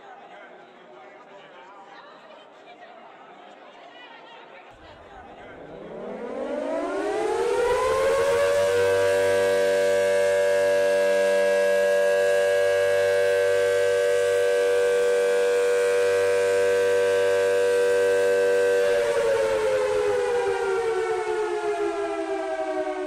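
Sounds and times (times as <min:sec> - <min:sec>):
factory siren winding down: 0:05.3 - 0:23.0.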